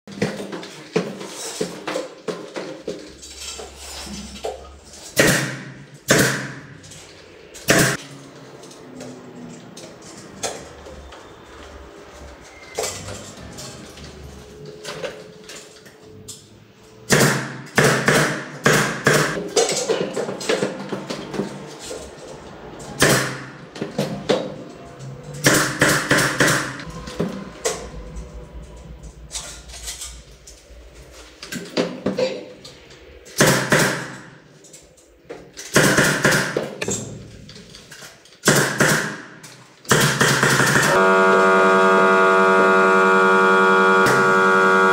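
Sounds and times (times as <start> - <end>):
power tool bursts: 40.0 - 44.9.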